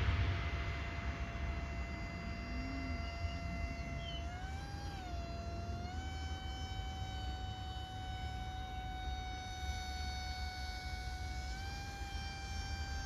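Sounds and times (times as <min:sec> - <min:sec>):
low rumble: 0:00.0 - 0:04.8
model motor and propeller whine: 0:00.0 - 0:13.0.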